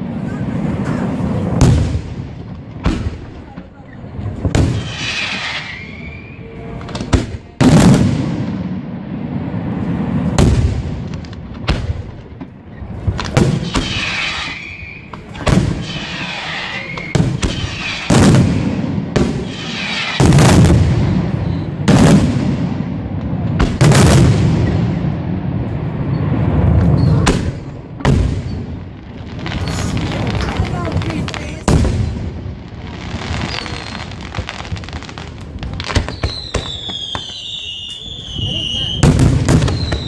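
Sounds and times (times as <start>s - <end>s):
firework shells bursting: 11.1s - 22.8s.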